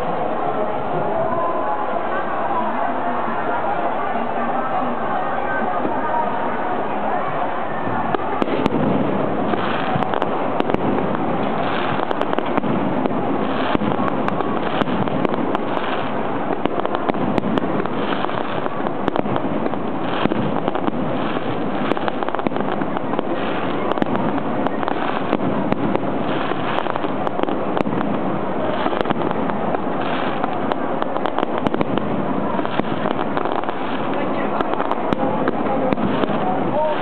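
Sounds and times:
firework shells bursting: 8.1s - 37.0s.

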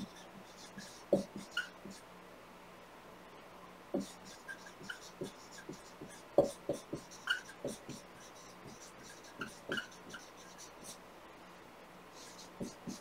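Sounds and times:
marker scratching on whiteboard: 0.0s - 2.0s, 4.0s - 11.0s, 12.2s - 13.0s
marker knocking on board: 1.1s - 1.6s, 6.4s - 8.0s, 12.6s - 13.0s.

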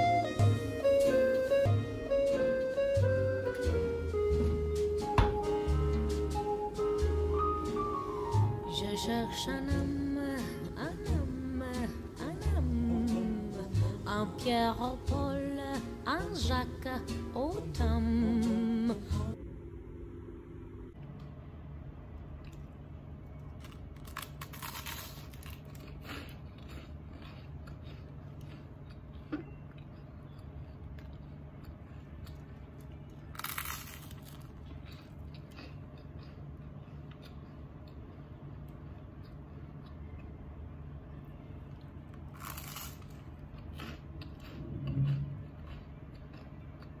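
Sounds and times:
steady low hum: 0.0s - 47.0s
toast crunching while chewed: 23.5s - 40.3s, 41.8s - 47.0s.

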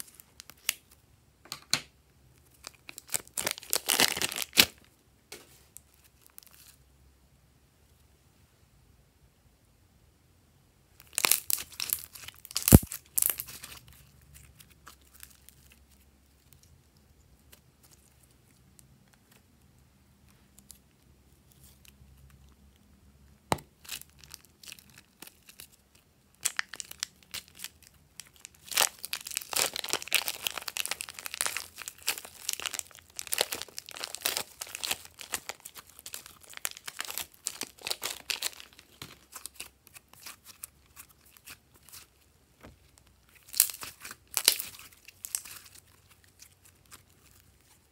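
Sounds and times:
sticky crackling and popping: 11.0s - 19.5s, 26.3s - 47.9s.

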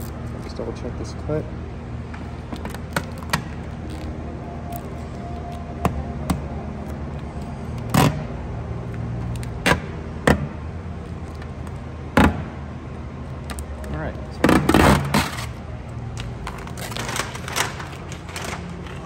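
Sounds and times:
steady low hum: 0.0s - 19.0s
plastic film crinkling: 15.2s - 19.0s.

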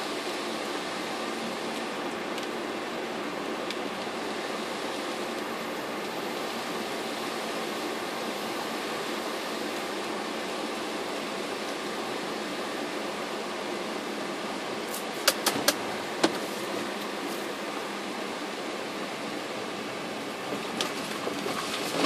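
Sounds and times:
rain hiss inside car: 0.0s - 15.3s, 16.0s - 22.0s
wet road noise: 18.7s - 22.0s.

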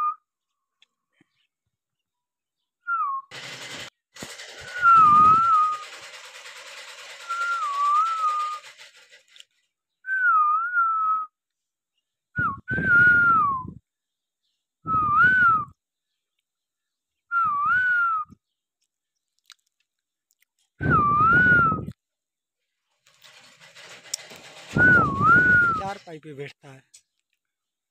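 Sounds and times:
person whistling: 4.7s - 5.8s, 7.3s - 8.6s, 10.1s - 11.4s, 12.4s - 13.8s, 14.9s - 15.7s, 17.3s - 18.4s, 20.8s - 21.9s, 24.7s - 26.0s.

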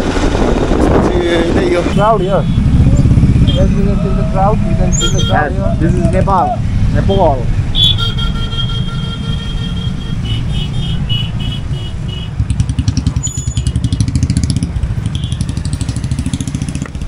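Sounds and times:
wind noise: 0.0s - 7.8s
motorcycle engine rumble: 0.0s - 17.0s
vehicle horn: 5.0s - 5.5s, 7.7s - 12.4s.

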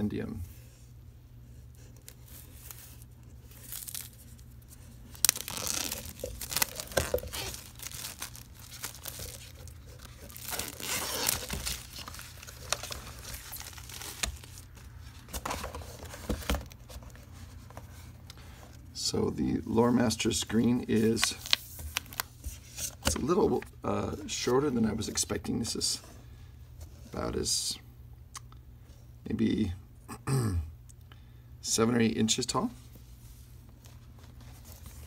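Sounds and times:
plastic wrap tearing and crinkling: 2.0s - 14.9s, 21.0s - 22.3s.

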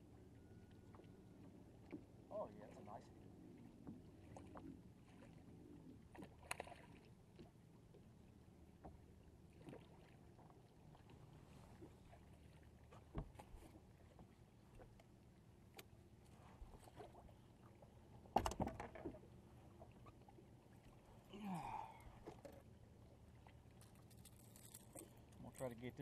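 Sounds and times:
water lapping against boat hull: 0.1s - 26.0s
splashing fish: 23.3s - 25.3s.

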